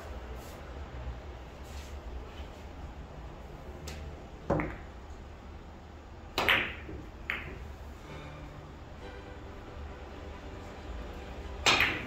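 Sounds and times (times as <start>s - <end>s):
billiard balls clicking: 3.9s - 5.2s, 6.3s - 7.7s, 11.6s - 12.0s.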